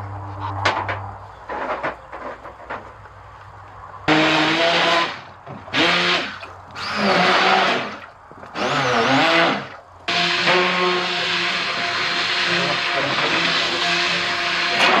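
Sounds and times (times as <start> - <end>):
immersion blender motor: 4.1 - 15.0.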